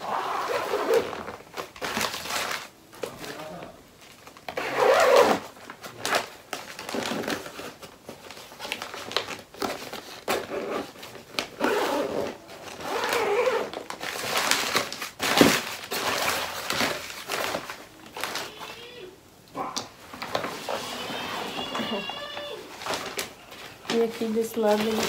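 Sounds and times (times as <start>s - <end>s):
suitcase lining rustling: 10.3s - 13.8s.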